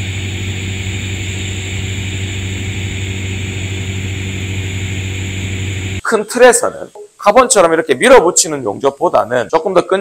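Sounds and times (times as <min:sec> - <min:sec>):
welding arc humming and hissing: 0:00.0 - 0:06.0.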